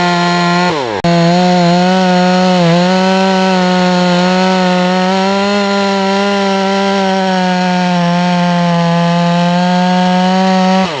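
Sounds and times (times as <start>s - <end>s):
chainsaw cutting wood: 0.0s - 11.0s.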